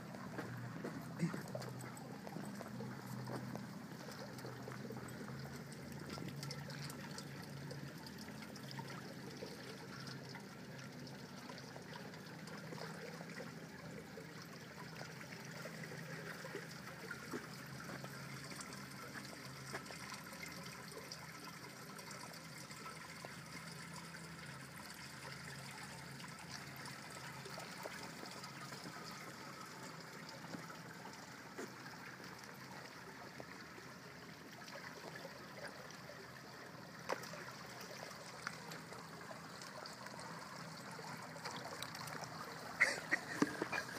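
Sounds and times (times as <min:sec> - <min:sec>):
pool water trickling: 0:00.0 - 0:43.9.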